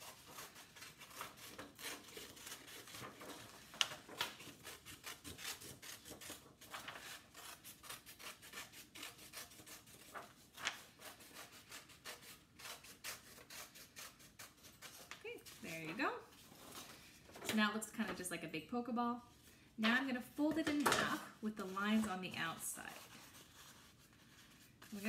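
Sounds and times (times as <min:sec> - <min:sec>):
paper rustling: 0:00.0 - 0:08.2, 0:09.0 - 0:11.3, 0:14.4 - 0:18.2, 0:19.8 - 0:25.0
scissors snipping paper: 0:00.0 - 0:15.2.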